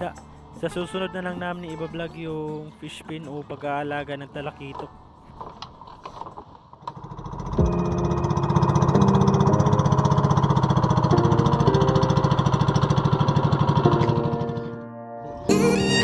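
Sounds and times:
boat engine puttering: 2.9 - 14.9.

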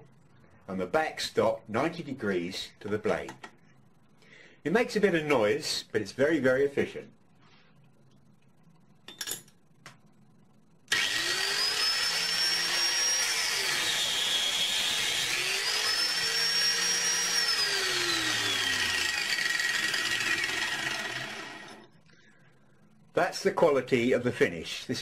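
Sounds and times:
angle grinder cutting steel: 10.9 - 21.9.

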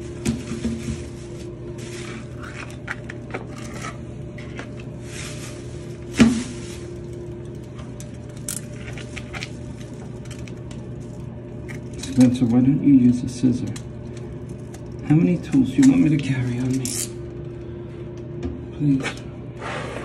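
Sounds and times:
steady low hum: 0.0 - 20.0
knife scraping wallpaper: 19.6 - 20.0.

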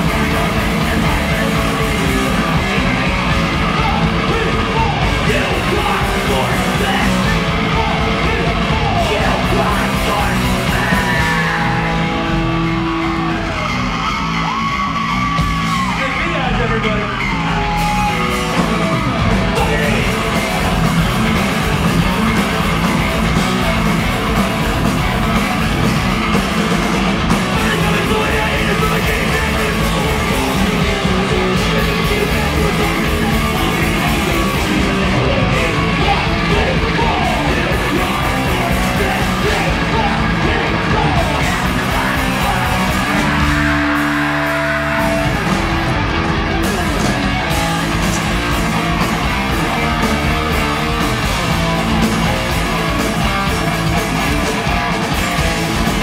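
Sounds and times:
person yelling and singing: 0.0 - 25.7, 27.3 - 45.6
live heavy rock band: 0.0 - 56.0.

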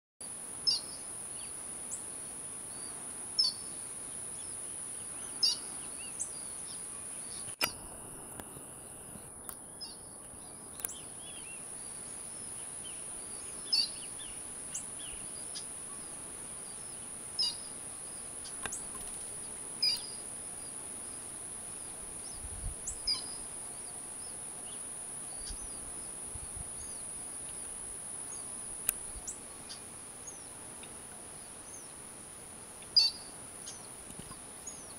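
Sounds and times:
steady high hiss: 0.2 - 34.9
bird chirps: 0.7 - 1.0, 5.2 - 7.8, 12.4 - 16.2, 16.8 - 18.9, 19.8 - 20.2, 22.3 - 24.8, 32.8 - 33.9.

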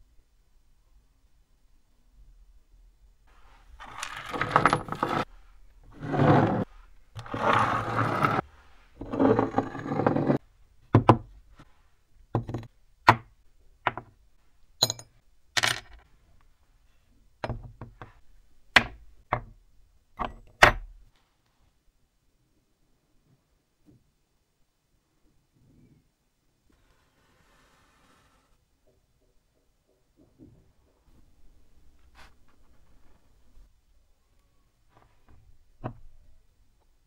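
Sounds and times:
scraping noises: 3.3 - 10.4.

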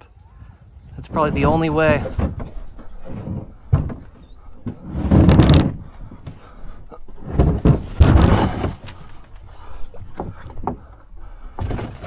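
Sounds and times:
kayak scraping on rock: 1.0 - 9.2.

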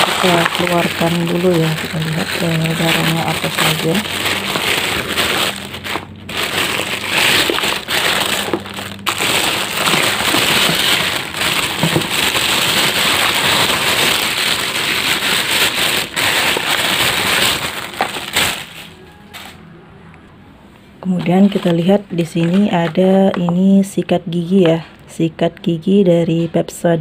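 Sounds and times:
packaging rustling and crinkling: 0.0 - 19.6, 21.2 - 23.0.

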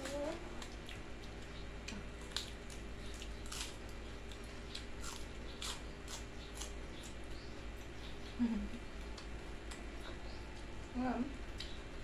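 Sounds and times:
wet crunchy chewing: 0.5 - 7.3.

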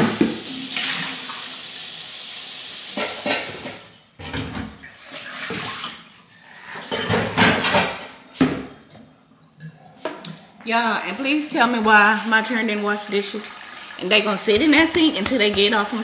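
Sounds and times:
kitchen tap running: 0.0 - 8.6, 11.7 - 16.0
dishes clattering: 3.0 - 4.8, 6.6 - 9.0.

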